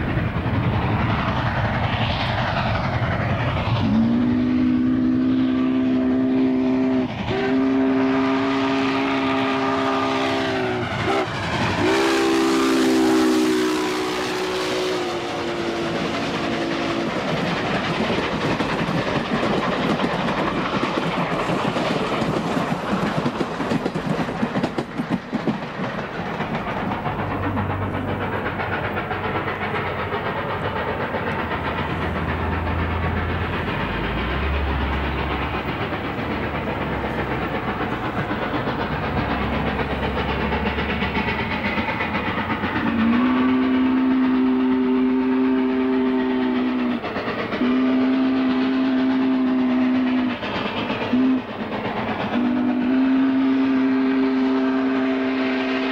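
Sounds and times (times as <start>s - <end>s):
steam locomotive running: 0.0s - 55.9s
steam whistle blasts: 3.8s - 17.1s, 42.9s - 47.0s, 47.6s - 50.3s, 51.1s - 51.5s, 52.4s - 55.9s
rail clatter: 7.1s - 55.9s.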